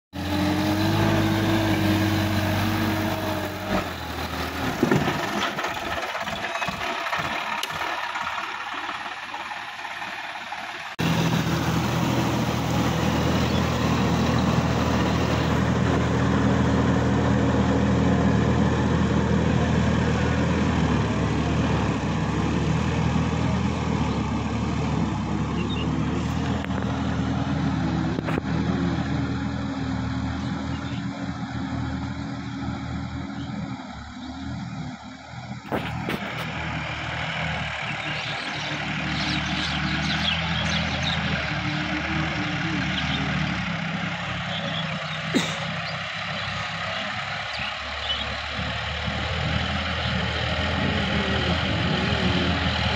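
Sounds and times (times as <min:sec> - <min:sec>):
tractor diesel engine running: 0:00.1 - 0:52.9.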